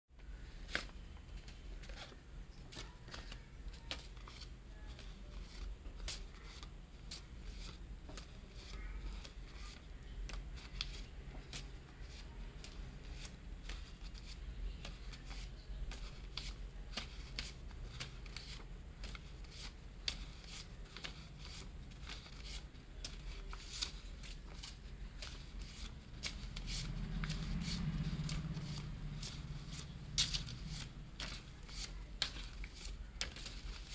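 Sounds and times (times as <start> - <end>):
low steady hum: 0.1 - 33.9
paper banknotes rustling: 0.2 - 33.9.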